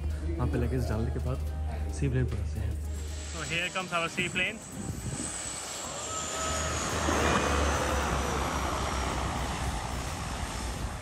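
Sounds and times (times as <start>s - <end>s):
seaplane engine: 2.9s - 11.0s
high whine falling in pitch: 3.0s - 11.0s.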